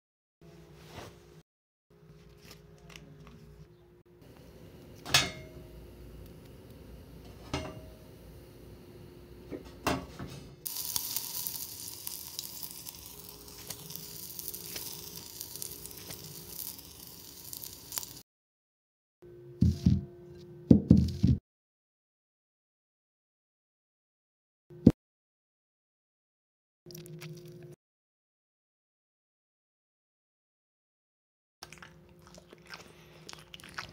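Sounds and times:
frying sizzle: 0:10.6 - 0:18.2.

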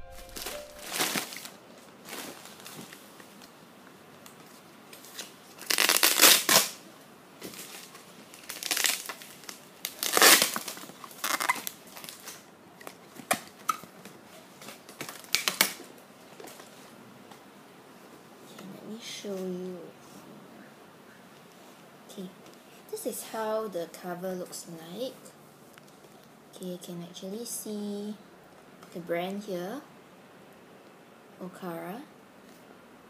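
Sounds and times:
plastic film crinkling: 0:00.0 - 0:03.5, 0:04.3 - 0:06.8, 0:07.4 - 0:16.8.

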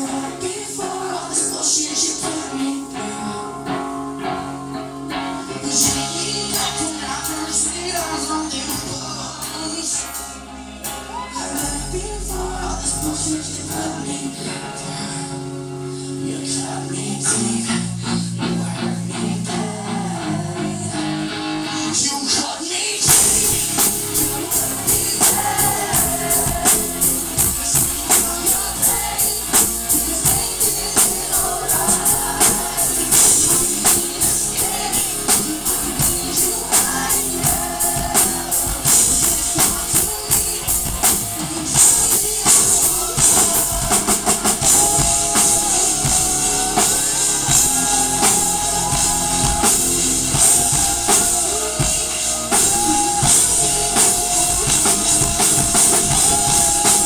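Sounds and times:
man singing: 0:00.0 - 0:04.8, 0:05.5 - 0:57.0
live rock band playing: 0:00.0 - 0:22.4, 0:23.0 - 0:57.0
drum kit: 0:05.5 - 0:14.4, 0:23.0 - 0:57.0.

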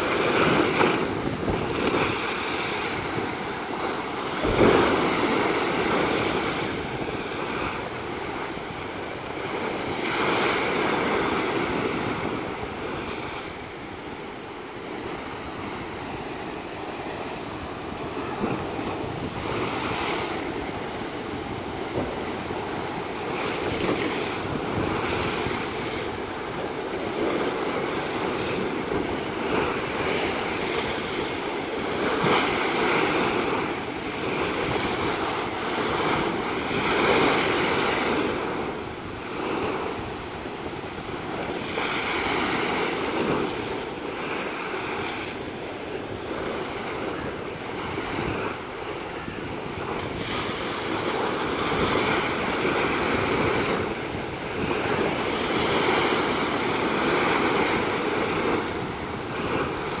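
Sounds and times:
surf breaking against seawall: 0:00.0 - 1:00.0.

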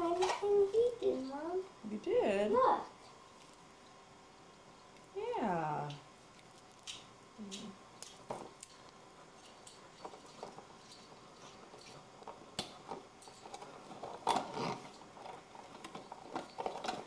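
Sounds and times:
packaging clicks and rustles: 0:12.3 - 0:17.0.

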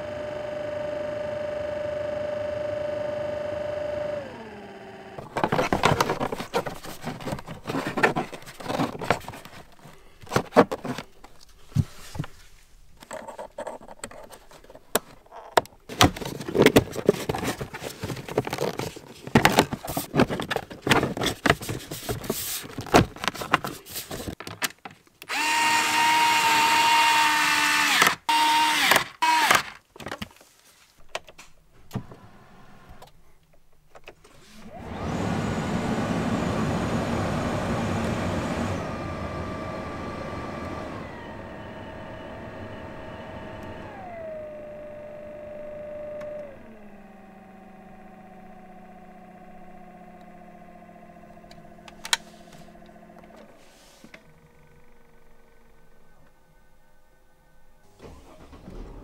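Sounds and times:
blower fan whirring: 0:00.0 - 0:10.0, 0:25.3 - 0:29.5, 0:34.4 - 0:56.1.

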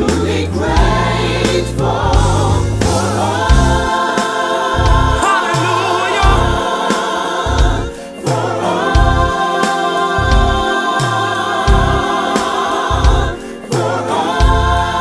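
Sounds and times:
gospel voices singing in harmony: 0:00.0 - 0:15.0
bass line: 0:06.1 - 0:06.6.

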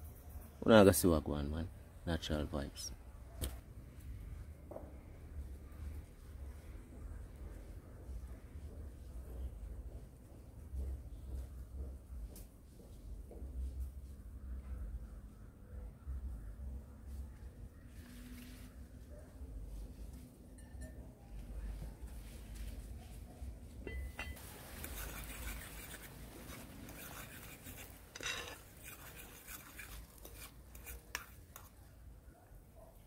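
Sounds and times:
utensil clinking against pot: 0:23.8 - 0:24.4, 0:27.0 - 0:31.7.

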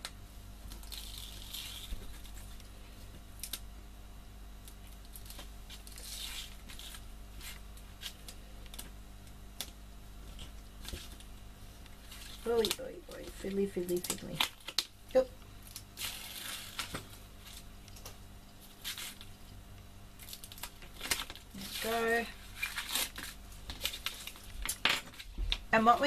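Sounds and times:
tape backing peeling off: 0:00.7 - 0:02.6, 0:04.8 - 0:08.9, 0:15.6 - 0:19.4, 0:20.2 - 0:25.6
paper crinkling and tapping: 0:20.2 - 0:26.0.

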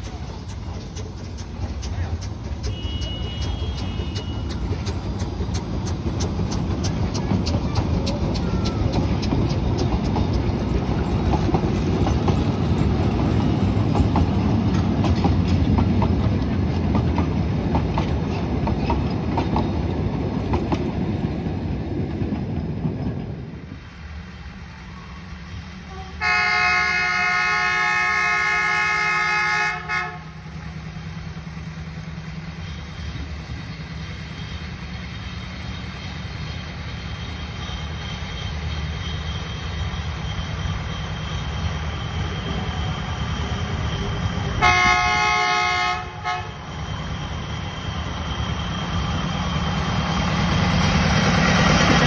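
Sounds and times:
diesel locomotive engine running: 0:00.0 - 0:52.0
locomotive horn blast: 0:02.6 - 0:04.6, 0:25.8 - 0:30.4, 0:44.6 - 0:46.7.

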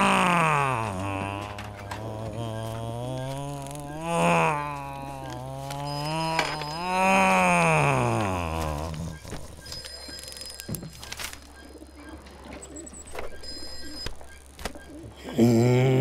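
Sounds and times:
man humming: 0:00.0 - 0:09.6, 0:15.2 - 0:16.0.

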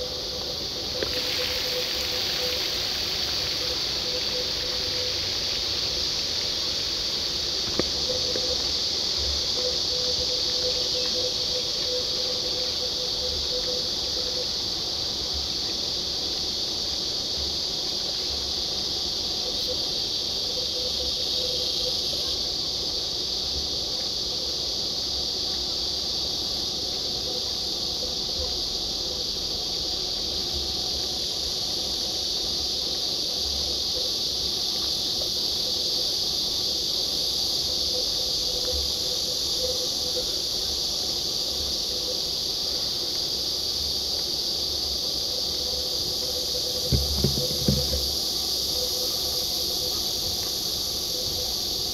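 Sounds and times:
insects shrilling: 0:00.0 - 0:14.9, 0:30.8 - 0:51.9
low thumps: 0:46.8 - 0:48.1.

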